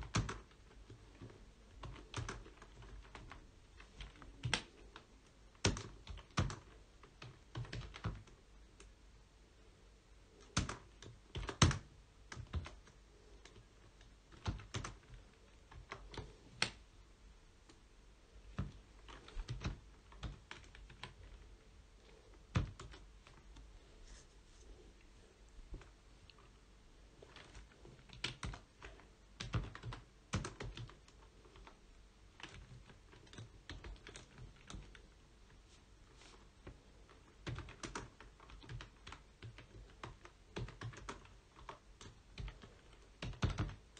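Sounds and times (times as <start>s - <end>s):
computer keyboard typing: 0.0s - 8.9s, 10.4s - 16.8s, 18.5s - 21.4s, 22.5s - 23.4s, 27.2s - 35.1s, 36.6s - 43.9s.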